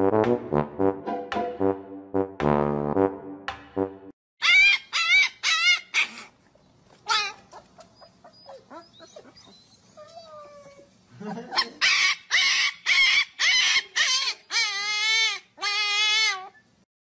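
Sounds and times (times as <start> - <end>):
puppy crying and howling: 4.4 - 6.3, 11.6 - 16.7
puppy whimpering: 4.4 - 6.4, 7.0 - 10.9, 11.5 - 16.7.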